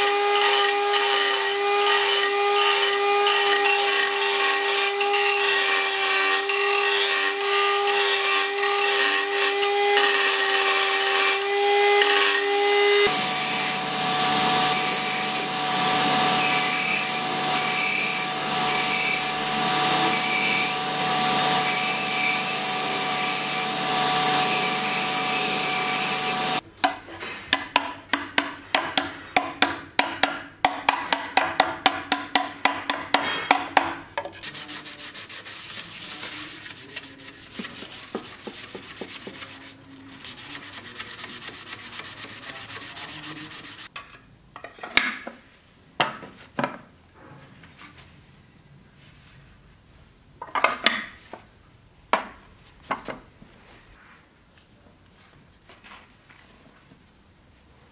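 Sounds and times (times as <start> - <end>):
belt grinder grinding with whine: 6.4 - 26.6.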